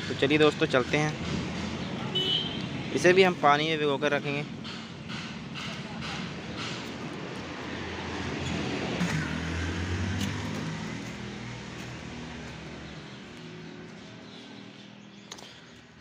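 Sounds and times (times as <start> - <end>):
passing vehicle engine hum: 6.2 - 15.2.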